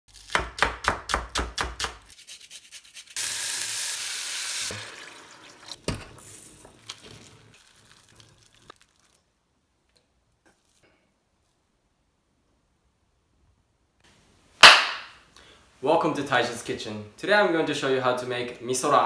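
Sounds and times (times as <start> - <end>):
knife chopping on cutting board: 0.3 - 2.0, 14.6 - 15.0
water sizzling in hot pot: 2.9 - 9.2.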